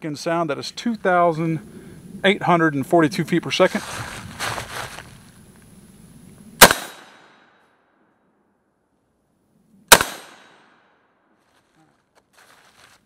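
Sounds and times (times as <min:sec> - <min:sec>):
rifle shots with echo: 0:06.6 - 0:07.5, 0:09.9 - 0:10.9.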